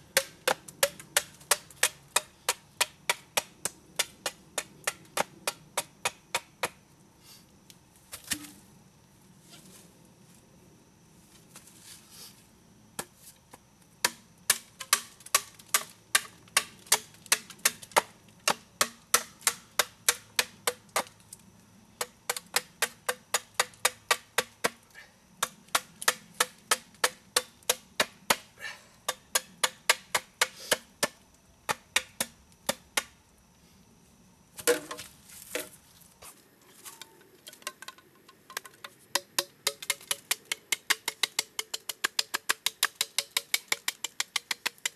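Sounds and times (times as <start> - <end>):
hatchet chopping bamboo: 0.1 - 6.8, 14.0 - 21.2, 22.0 - 24.8, 25.4 - 28.5, 29.1 - 33.2, 34.6 - 35.7, 38.6 - 44.9.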